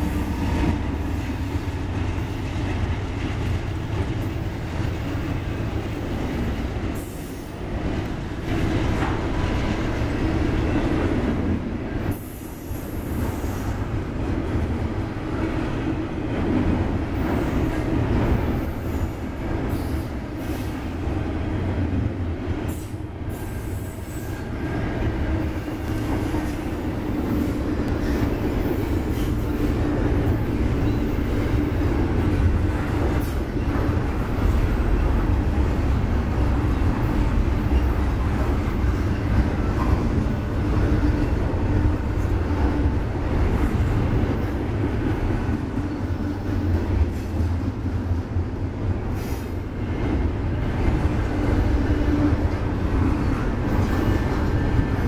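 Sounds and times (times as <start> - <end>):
train wheels rumbling on rails: 0.0 - 55.0.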